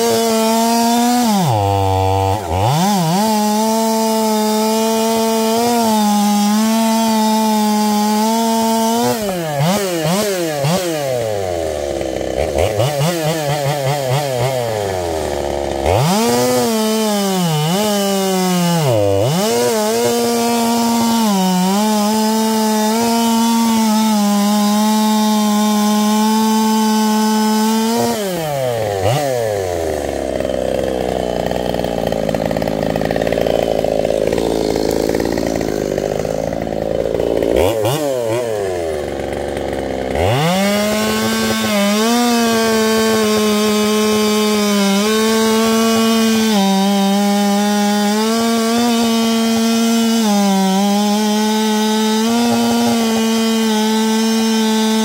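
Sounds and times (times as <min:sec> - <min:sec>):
chainsaw cutting log: 0:00.0 - 0:55.0.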